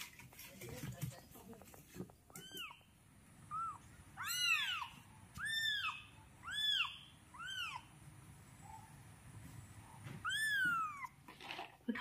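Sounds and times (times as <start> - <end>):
kittens mewing: 2.3 - 7.9, 10.2 - 11.2.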